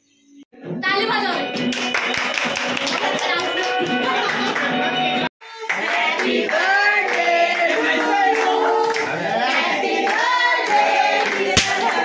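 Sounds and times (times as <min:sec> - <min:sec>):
hands clapping: 0:01.5 - 0:04.9, 0:05.6 - 0:07.7, 0:08.3 - 0:12.0
group of people singing: 0:05.7 - 0:12.0.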